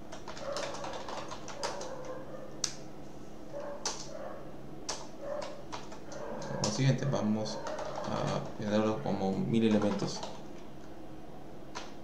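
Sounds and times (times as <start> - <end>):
steady low hum: 0.0 - 12.0
keyboard typing: 0.1 - 2.8, 3.8 - 4.1, 4.9 - 10.6.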